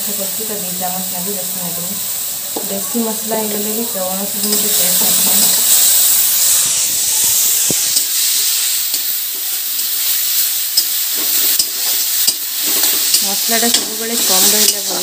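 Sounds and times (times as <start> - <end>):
paste sizzling in hot oil: 0.0 - 15.0
spatula tapping pan: 4.4 - 4.8, 10.7 - 15.0.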